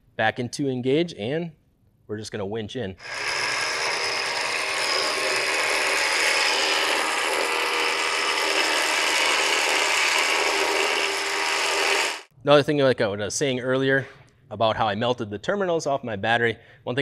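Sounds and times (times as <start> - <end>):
electric winch running: 3.0 - 12.3.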